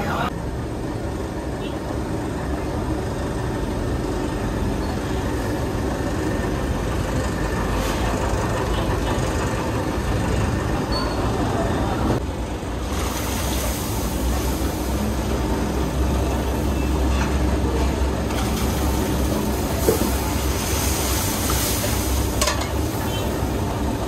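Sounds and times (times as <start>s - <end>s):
hiss: 12.8s - 16.8s, 18.5s - 23.6s.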